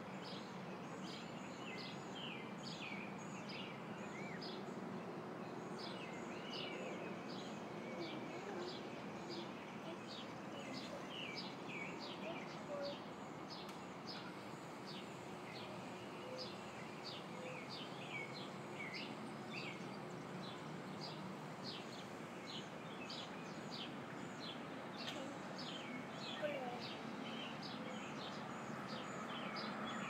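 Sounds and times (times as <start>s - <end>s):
songbirds chirping: 0.0s - 30.0s
steady background noise: 0.0s - 30.0s.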